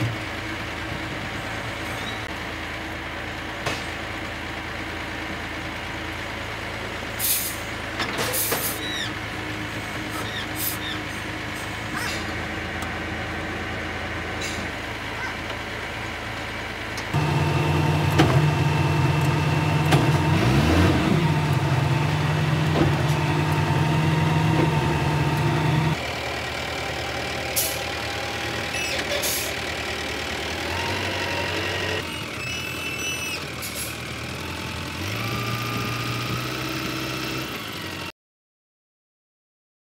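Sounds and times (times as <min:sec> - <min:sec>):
diesel engine running: 0:00.0 - 0:38.1
brief high squeals: 0:32.2 - 0:33.4.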